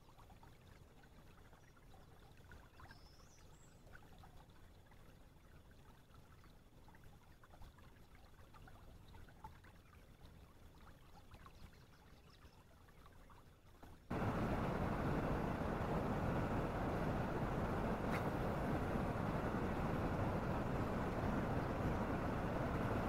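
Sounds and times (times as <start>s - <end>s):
faint river water trickling: 0.0s - 23.0s.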